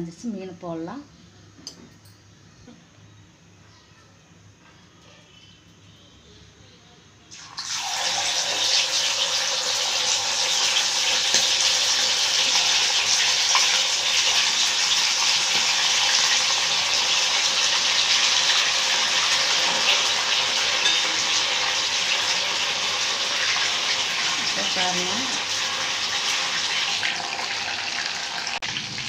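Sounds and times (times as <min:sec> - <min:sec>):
fish sizzling in hot oil: 0:07.3 - 0:29.0.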